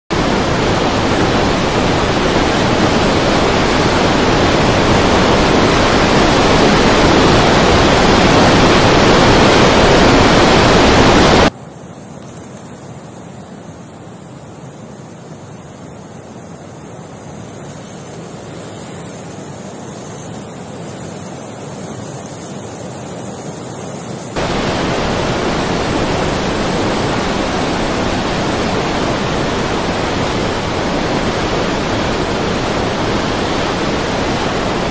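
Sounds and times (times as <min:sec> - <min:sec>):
floodwater rushing: 0:00.1 - 0:11.5, 0:24.3 - 0:34.9.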